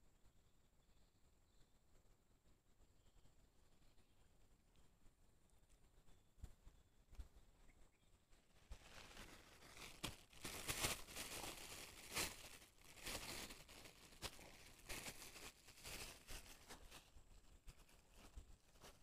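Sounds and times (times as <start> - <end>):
plastic bag crinkling: 8.6 - 19.0.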